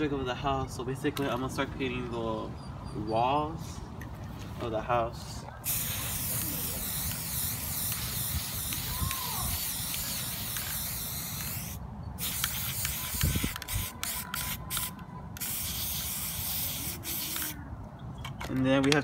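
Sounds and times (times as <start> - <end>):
spray paint can hissing: 5.6 - 17.6.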